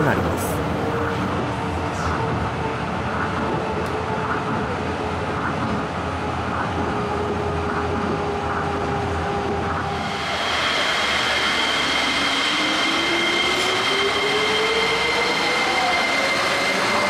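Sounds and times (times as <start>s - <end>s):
train rumble inside car: 0.0s - 10.5s.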